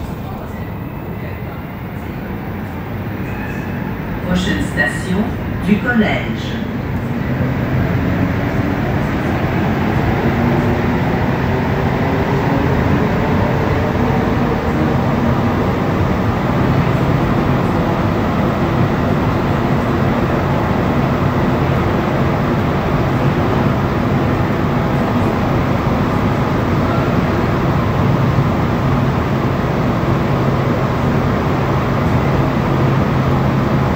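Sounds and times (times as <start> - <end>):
train rumbling: 0.0 - 33.9.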